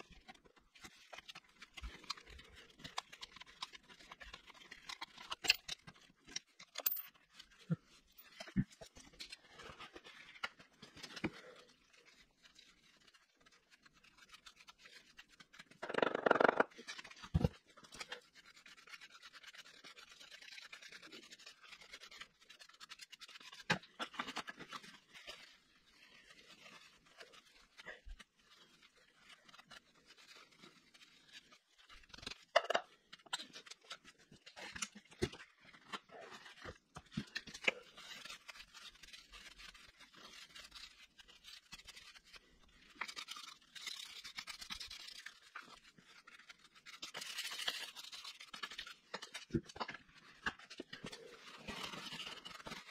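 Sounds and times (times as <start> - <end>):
tools and metal parts clicking: 6.6 - 7.2.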